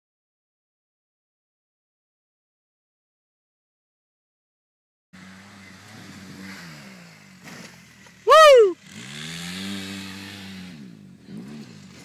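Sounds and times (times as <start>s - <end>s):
vehicle engine revving: 5.2s - 12.0s
loud cry: 8.3s - 8.8s.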